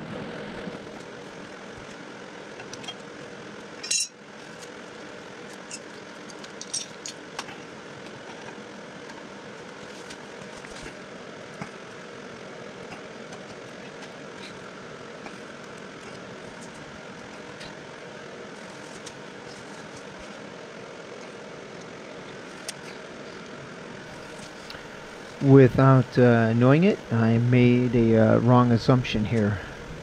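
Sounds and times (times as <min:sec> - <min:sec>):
steady background noise: 0:00.0 - 0:30.0.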